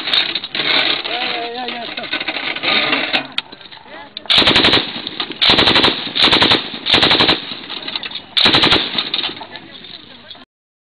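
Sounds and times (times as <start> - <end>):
gunfire echo: 4.3 - 7.8, 8.4 - 9.4
machine gun firing in bursts: 4.3 - 7.8, 8.4 - 9.4.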